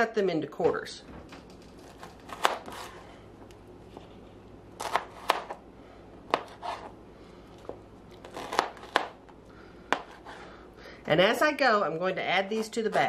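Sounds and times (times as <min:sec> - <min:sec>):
knife cutting on plastic board: 0:06.3 - 0:06.9, 0:08.2 - 0:09.2.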